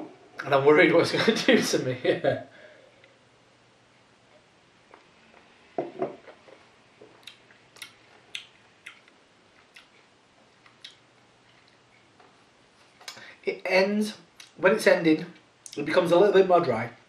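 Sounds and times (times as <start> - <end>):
lip-smacks and tongue clicks: 7.2 - 10.0.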